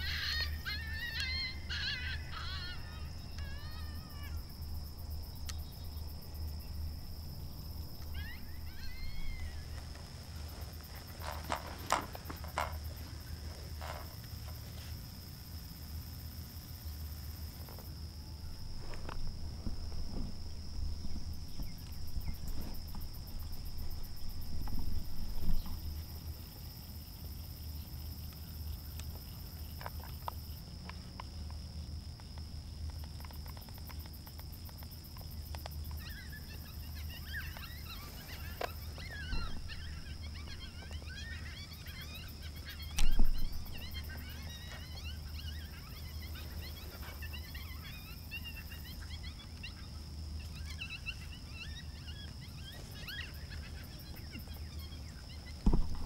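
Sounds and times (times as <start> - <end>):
high chirping calls: 0.0 - 6.2, 7.8 - 14.2, 36.0 - 56.0
low wind rumble: 0.0 - 28.0, 37.8 - 46.8
high insect drone: 0.0 - 56.0.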